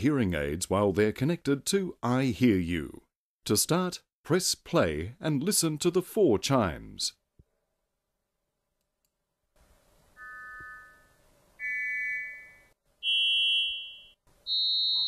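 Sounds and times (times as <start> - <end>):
electronic test chimes: 10.2 - 15.0.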